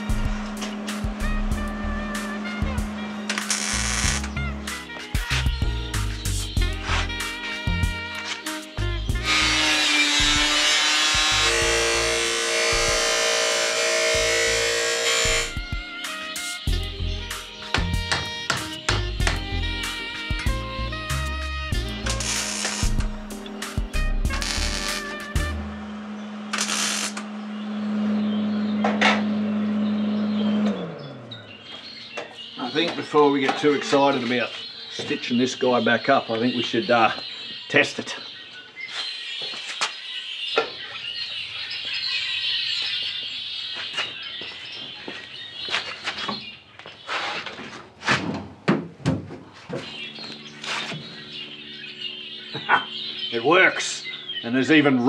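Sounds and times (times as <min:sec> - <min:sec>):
steady low hum: 0:00.0 - 0:04.8, 0:21.7 - 0:30.5
birds chirping: 0:00.0 - 0:48.1, 0:49.2 - 0:55.0
welder crackling hiss: 0:03.3 - 0:04.4, 0:21.9 - 0:23.4, 0:24.3 - 0:25.3, 0:26.5 - 0:27.2.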